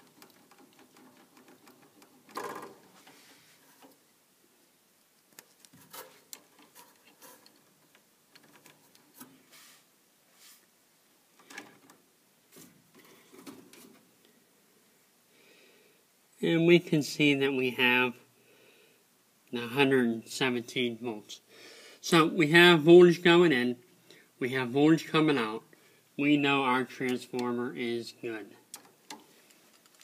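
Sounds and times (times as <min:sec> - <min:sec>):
faint clicks and rustles of handling: 0:00.0 - 0:10.7, 0:11.3 - 0:14.5, 0:28.2 - 0:30.0.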